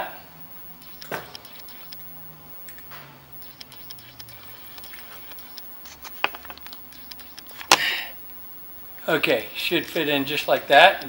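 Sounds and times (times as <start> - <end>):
wire handling ticks and rustles: 0.8 - 7.9.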